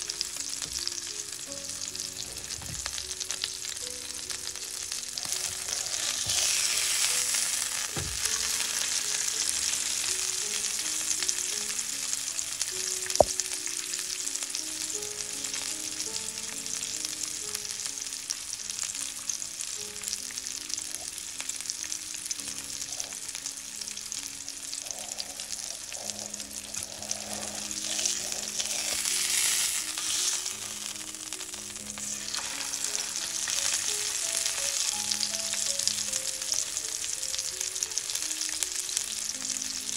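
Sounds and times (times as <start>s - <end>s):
steak sizzling in frying pan: 0.0s - 39.9s.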